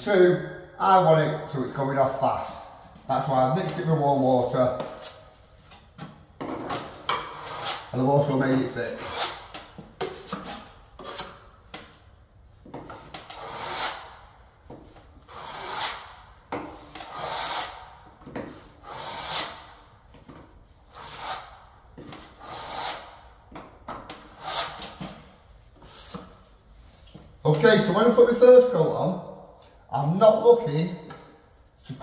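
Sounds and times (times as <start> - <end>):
trowel scraping filler on wall: 3.6 - 12.0, 12.6 - 26.6.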